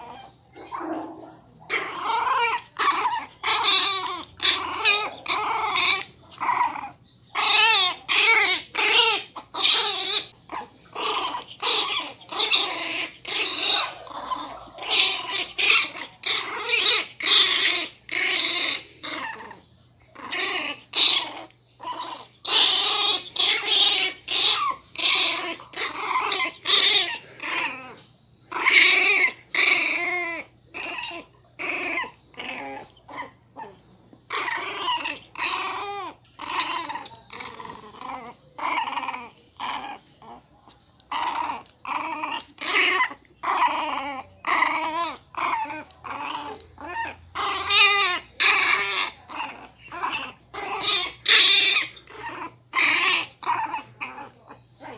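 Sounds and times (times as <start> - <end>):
puppies growling and yapping: 0.0 - 54.9.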